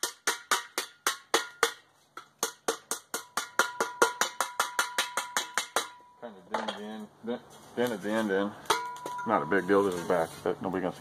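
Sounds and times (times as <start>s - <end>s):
hammer striking steel tank: 0.0s - 6.8s, 8.7s - 9.8s.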